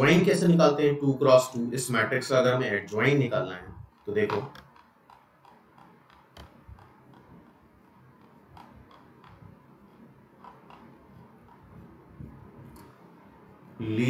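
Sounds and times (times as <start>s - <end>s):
low room hum: 0.0s - 14.0s
stylus tapping on pen tablet: 3.9s - 13.1s.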